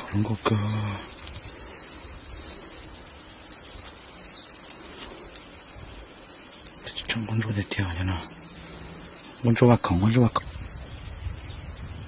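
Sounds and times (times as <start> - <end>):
background hiss: 0.0 - 12.0
birds chirping: 0.0 - 12.0
faint clicks: 3.4 - 5.8, 6.5 - 7.2.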